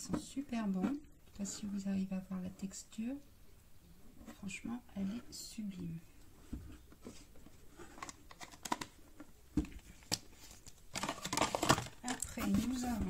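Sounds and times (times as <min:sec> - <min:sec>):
packaging rustling: 0:07.2 - 0:13.0.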